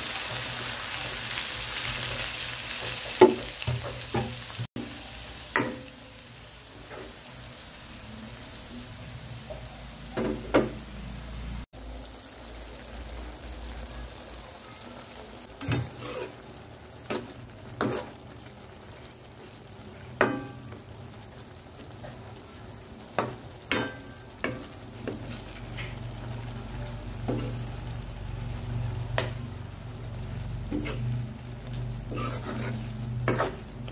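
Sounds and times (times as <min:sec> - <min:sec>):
stew simmering with sizzle: 0:00.0 - 0:33.9
utensil scraping metal pan: 0:15.6 - 0:16.4, 0:30.7 - 0:31.2, 0:32.0 - 0:33.9.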